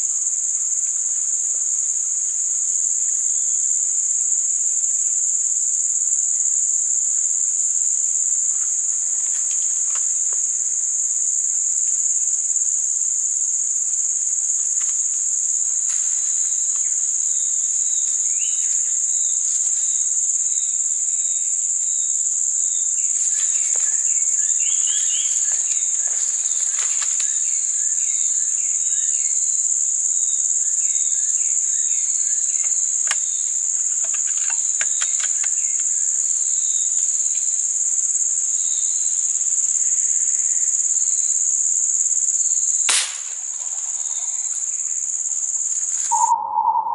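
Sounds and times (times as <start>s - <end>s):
insects droning: 0.0s - 46.9s
short repeated chirps: 46.1s - 46.9s.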